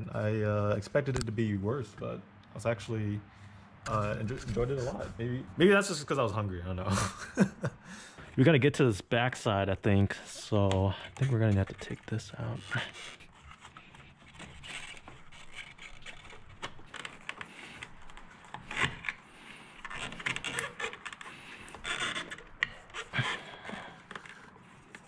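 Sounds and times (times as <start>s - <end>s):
hard plastic scraping and clicking: 10.2s - 25.0s.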